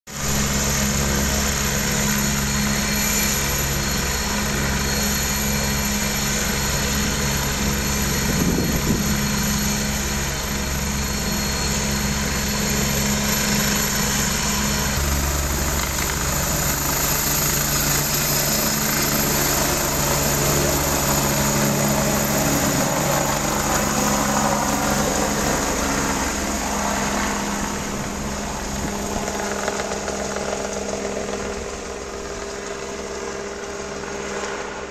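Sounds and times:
helicopter engine and rotor: 0.1 - 34.9.

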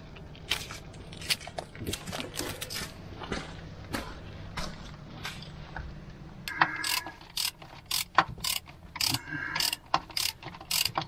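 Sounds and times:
ratchet wrench clicking: 6.5 - 11.0.

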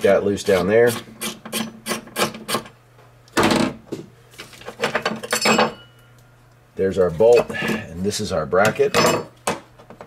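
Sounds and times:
metal clinking and scraping: 4.8 - 6.1.

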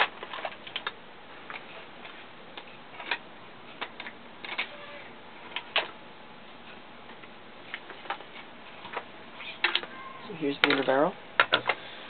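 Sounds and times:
plastic and metal parts clicking: 10.6 - 11.8.

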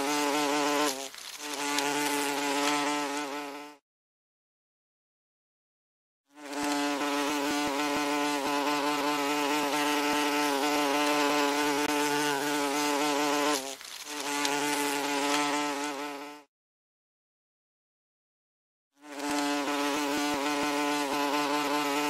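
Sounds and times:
wasp buzzing: 0.0 - 3.8, 6.3 - 16.5, 19.0 - 22.0.

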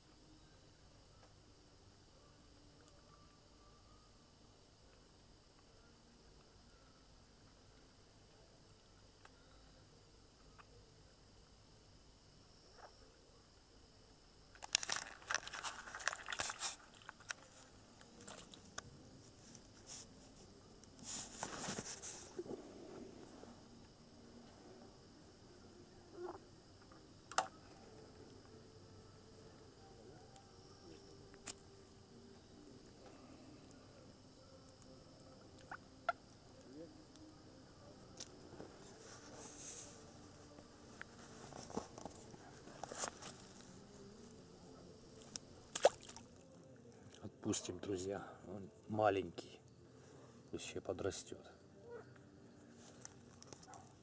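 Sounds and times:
night insects chirring: 0.0 - 54.0
rustling and crackling: 14.5 - 23.6.

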